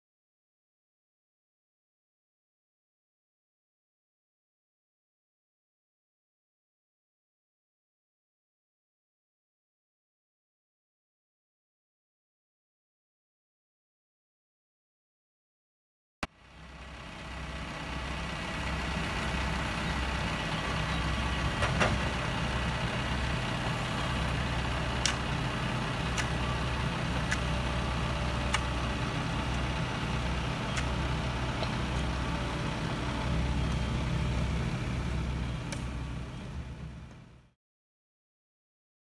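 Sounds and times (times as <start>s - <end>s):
diesel engines idling: 16.3s - 37.5s.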